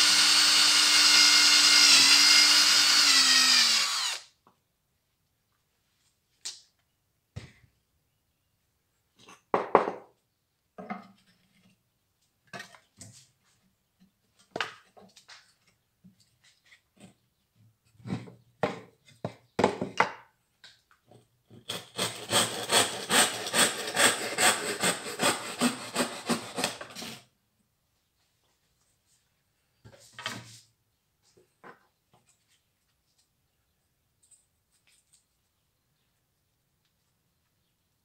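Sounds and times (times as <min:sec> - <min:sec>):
hand saw cutting wood: 0:00.0 - 0:04.3, 0:21.6 - 0:27.3.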